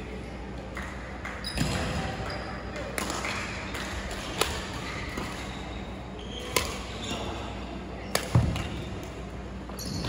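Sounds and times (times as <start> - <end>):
racket hitting shuttlecock: 6.5 - 6.9.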